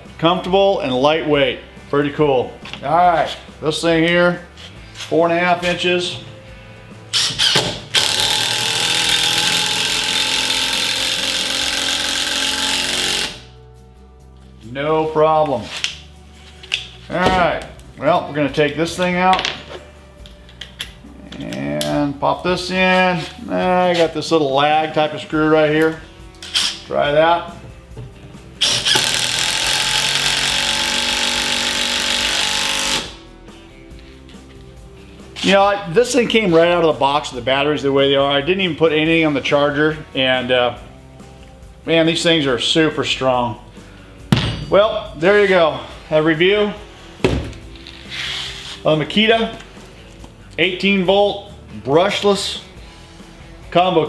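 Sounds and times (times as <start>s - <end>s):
impact driver driving screw into wood: 7.2s - 13.4s, 28.6s - 33.1s.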